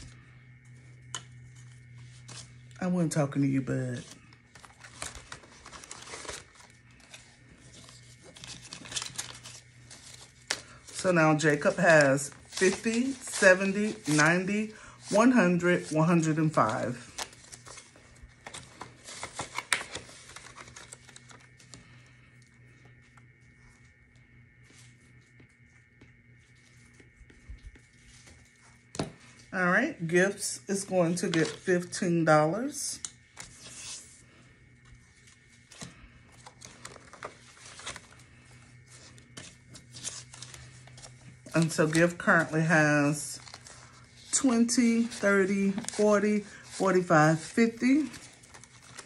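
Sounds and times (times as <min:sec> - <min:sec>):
banknotes rustling: 0:00.0 - 0:49.0
low steady hum: 0:00.0 - 0:49.0
ring binder pages rustling and clicking: 0:03.9 - 0:22.1, 0:34.8 - 0:49.0.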